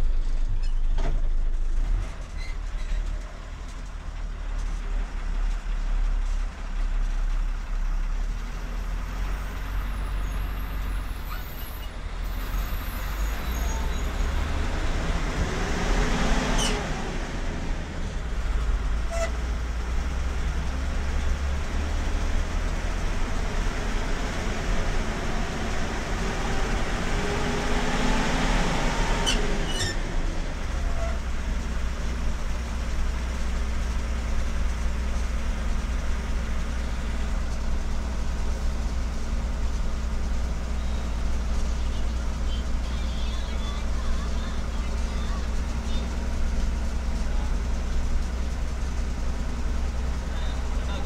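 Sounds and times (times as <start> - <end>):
bus passing: 0.0 - 51.0
car engine and tyre rumble: 0.0 - 51.0.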